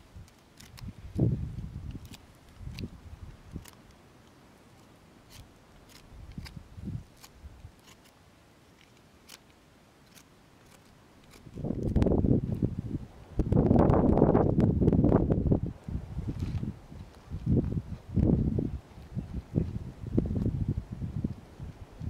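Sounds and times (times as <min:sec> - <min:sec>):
wind gusts on microphone: 0:00.0 - 0:03.7, 0:06.1 - 0:07.7, 0:11.4 - 0:22.0.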